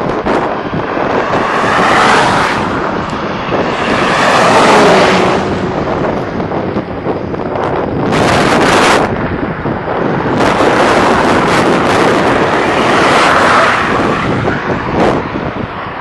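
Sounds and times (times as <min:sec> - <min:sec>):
truck passing: 0:00.0 - 0:16.0
vehicles passing: 0:00.0 - 0:16.0
wind rushing over microphone: 0:00.0 - 0:16.0.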